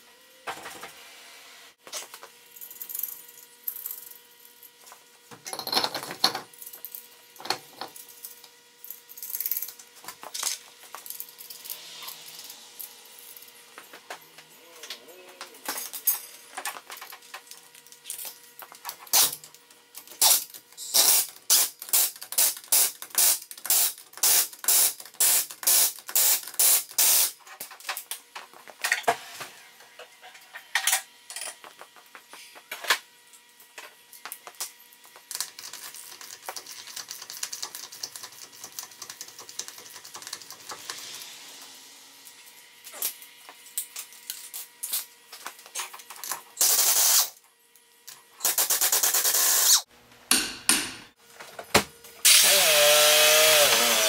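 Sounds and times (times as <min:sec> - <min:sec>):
pneumatic impact wrench: 0:09.2 - 0:09.8, 0:10.4 - 0:13.8, 0:19.1 - 0:19.4, 0:20.1 - 0:27.4, 0:36.8 - 0:43.2, 0:46.6 - 0:47.4, 0:48.4 - 0:49.9, 0:52.2 - 0:54.0.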